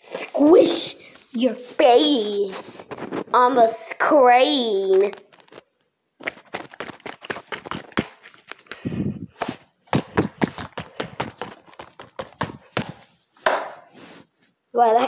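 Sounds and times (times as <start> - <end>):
squishy toy rubbing against phone: 6.2 - 13.3, 13.9 - 14.6.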